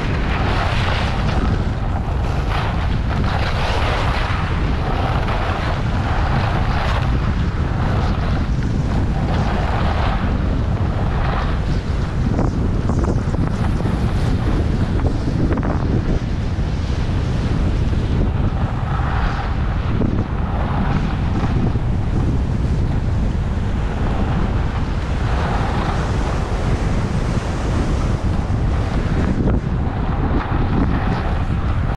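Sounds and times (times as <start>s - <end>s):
wind buffeting microphone: 0.0s - 31.9s
skis hissing over packed snow: 0.1s - 15.3s.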